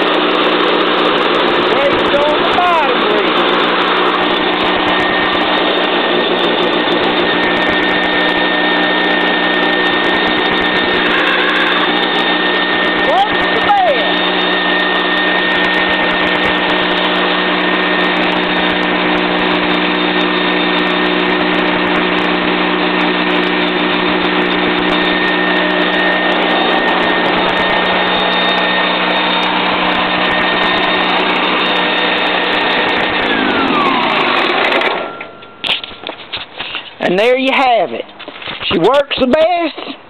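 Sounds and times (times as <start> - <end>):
gasoline engine running: 0.0 - 37.0.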